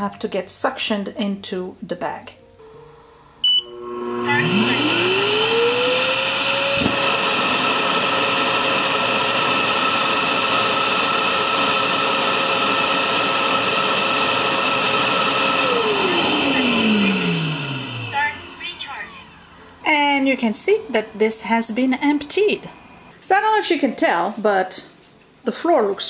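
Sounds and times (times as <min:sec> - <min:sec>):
short beep: 0:03.4 - 0:03.8
suction motor whining: 0:03.6 - 0:19.7.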